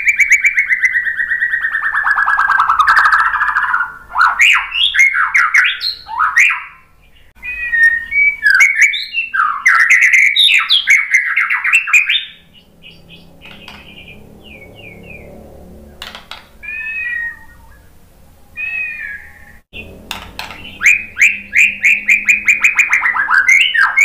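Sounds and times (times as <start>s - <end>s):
bird singing whistled song: 0.0s - 15.3s, 16.6s - 17.9s, 18.6s - 24.0s.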